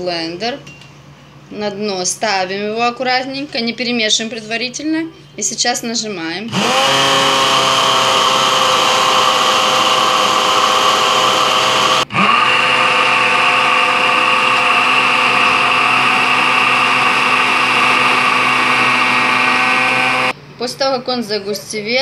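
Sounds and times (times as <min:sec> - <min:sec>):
stick blender motor whine: 0:06.5 - 0:20.3.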